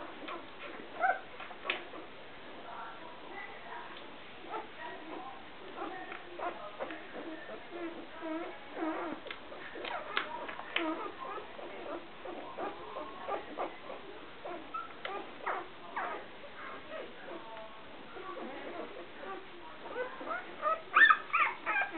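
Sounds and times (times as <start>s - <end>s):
puppy squeaking and whimpering: 0.1s - 2.1s, 5.8s - 9.2s, 9.8s - 16.3s, 18.4s - 21.9s.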